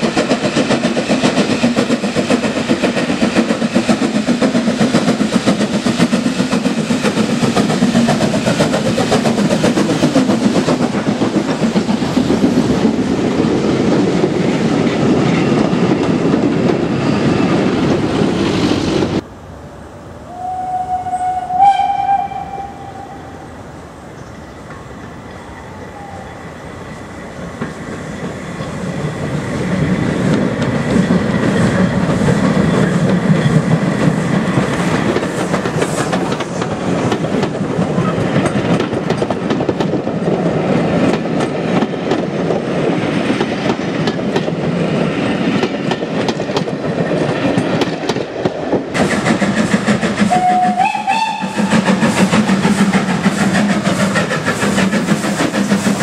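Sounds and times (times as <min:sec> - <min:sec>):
train wheels clattering over rail joints: 0:00.0 - 0:19.2, 0:27.4 - 0:56.0
steam locomotive running: 0:00.0 - 0:56.0
short rising train whistle: 0:20.2 - 0:23.5, 0:25.3 - 0:26.6, 0:50.2 - 0:52.1.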